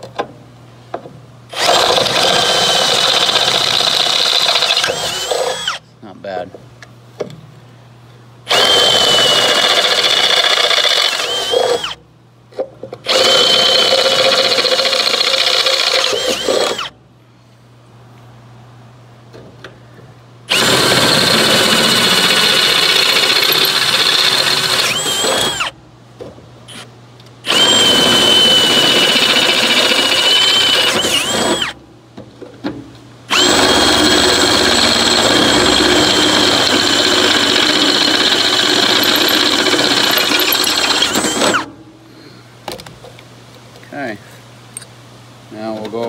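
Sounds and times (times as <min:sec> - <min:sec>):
power drill boring through metal: 0:01.5 - 0:05.8, 0:08.5 - 0:12.0, 0:13.1 - 0:16.9, 0:20.5 - 0:25.7, 0:27.5 - 0:31.8, 0:33.3 - 0:41.7.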